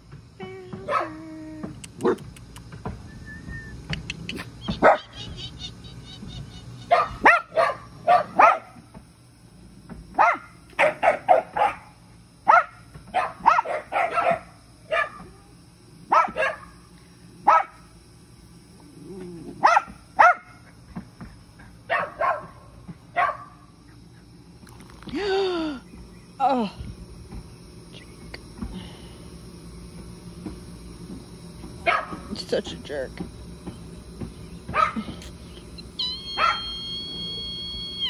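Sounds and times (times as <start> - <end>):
dog barking: 4.8 - 5.1, 6.9 - 8.8, 10.2 - 11.9, 12.5 - 15.2, 16.1 - 16.8, 17.4 - 17.8, 19.6 - 20.6, 21.9 - 22.6, 23.2 - 23.6, 31.8 - 32.2, 34.7 - 35.0, 36.3 - 36.7.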